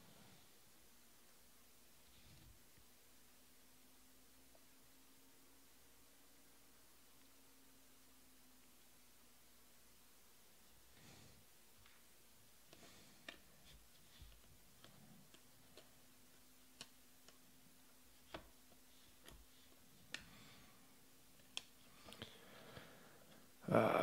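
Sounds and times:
cards being flipped: 12.7s - 20.4s.

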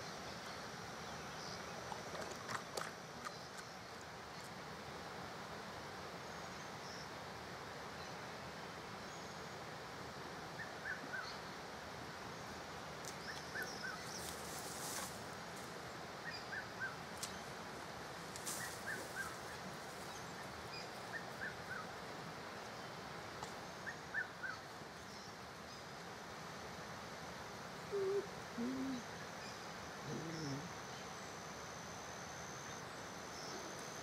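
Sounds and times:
owl giving low two-note hoot: 27.9s - 29.1s, 30.1s - 30.7s.

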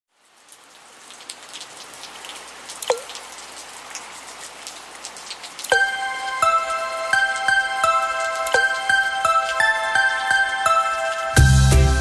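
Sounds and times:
rain pattering on puddle: 0.1s - 12.0s
water drop plop: 2.8s - 3.2s, 8.4s - 8.8s.

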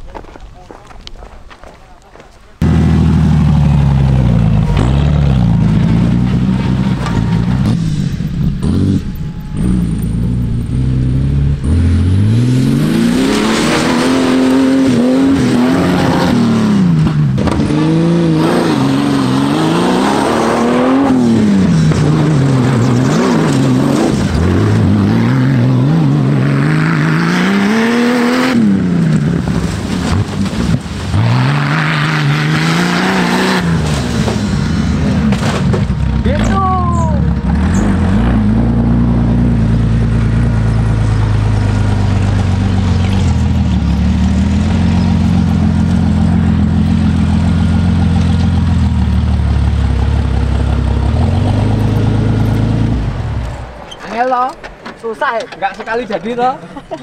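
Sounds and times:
buggy engine revving loudly: 2.6s - 53.7s.

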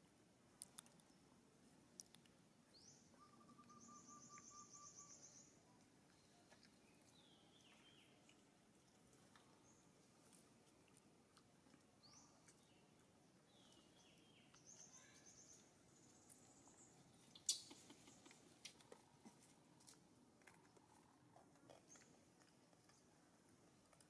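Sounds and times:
faint high chirping calls: 2.7s - 8.4s, 12.0s - 18.4s.

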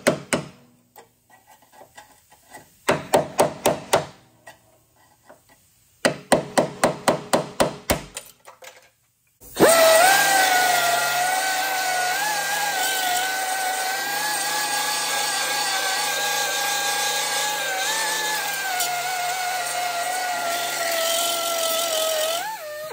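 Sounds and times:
belt sander grinding metal: 9.6s - 22.9s.

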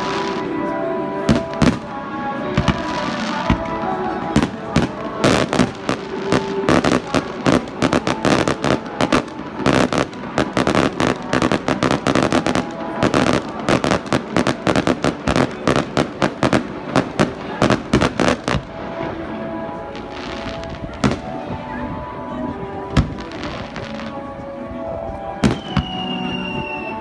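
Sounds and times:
fireworks crackling: 0.0s - 22.1s, 22.8s - 24.5s, 25.1s - 27.0s
fireworks bangs: 1.2s - 19.3s, 25.4s - 26.9s.

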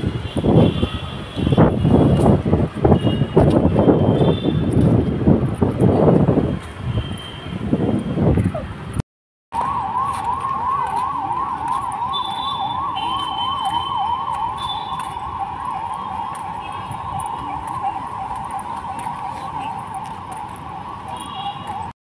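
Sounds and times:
emergency vehicle siren yelping: 9.5s - 21.9s.

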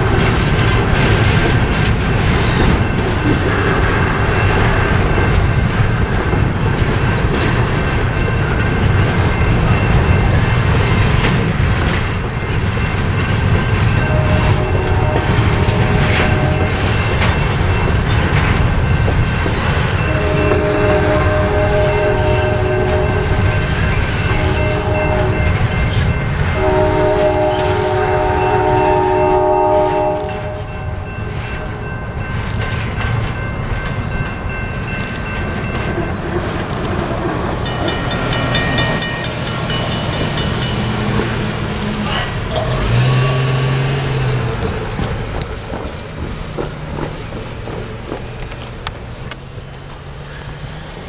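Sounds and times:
crossing bells ringing: 0.0s - 50.1s
freight train rumbling: 0.0s - 51.0s
locomotive horn: 13.9s - 17.1s, 20.0s - 32.0s, 41.2s - 44.7s
car driving over tracks: 32.4s - 51.0s.

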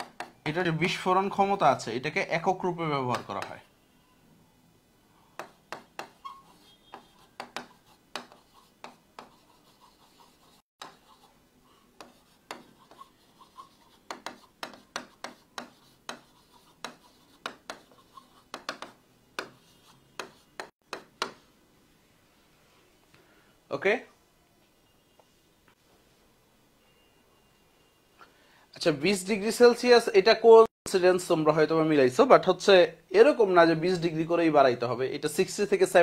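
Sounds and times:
marker writing on whiteboard: 0.0s - 0.4s, 3.0s - 3.7s, 5.4s - 21.5s.

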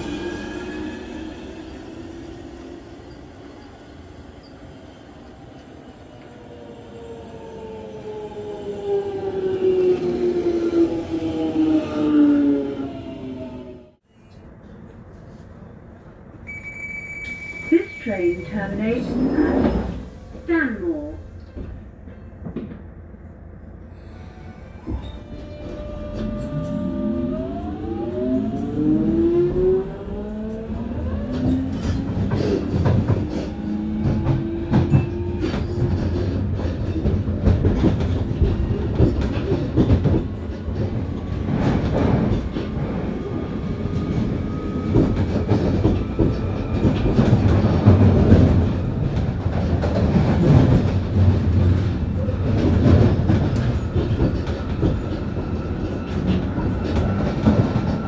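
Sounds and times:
wheels rumbling on rail: 17.3s - 58.0s.

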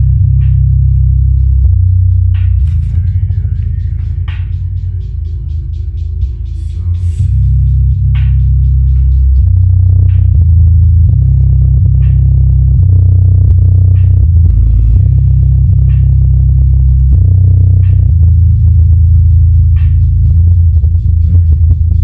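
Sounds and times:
bass-heavy hip-hop track: 0.0s - 22.0s.

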